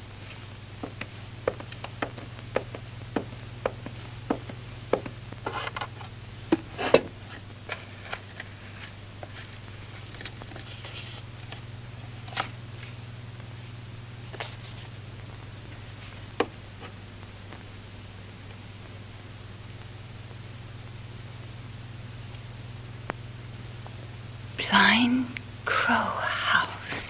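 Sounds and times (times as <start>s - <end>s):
footsteps: 0.0s - 7.1s
steady low hum: 0.0s - 27.0s
scattered taps: 0.8s - 5.6s.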